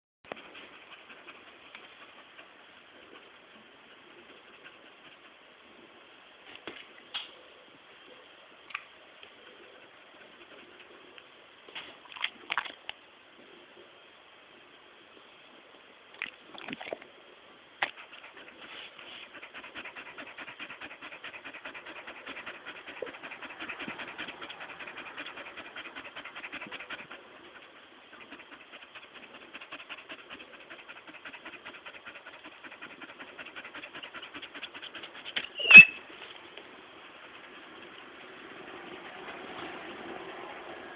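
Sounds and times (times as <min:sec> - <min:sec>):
dog panting: 0:00.2 - 0:05.5, 0:09.6 - 0:11.2, 0:17.8 - 0:40.7.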